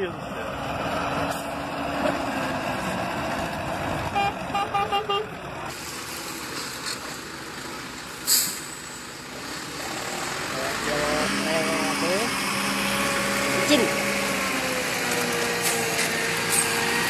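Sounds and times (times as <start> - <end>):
steady vehicle noise: 0.0 - 17.0
vehicle horn short beeps: 4.2 - 5.2.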